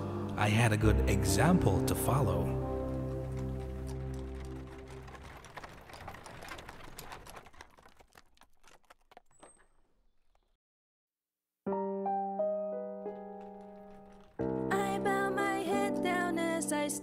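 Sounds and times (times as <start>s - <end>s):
background music: 0.0s - 5.8s, 11.7s - 17.0s
horse-drawn carriage rattling: 2.0s - 9.8s.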